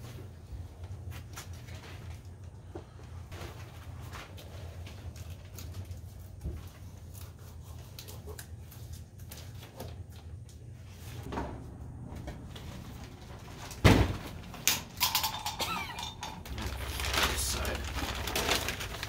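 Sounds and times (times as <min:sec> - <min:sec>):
plastic sheet crinkling: 0:12.7 - 0:19.0.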